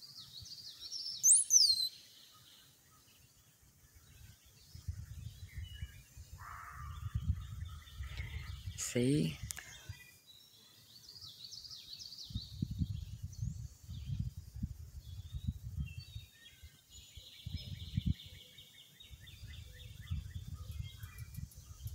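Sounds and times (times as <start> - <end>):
birds singing and chirping: 0.0 - 21.9
low microphone rumbles: 4.7 - 10.0, 12.3 - 16.3.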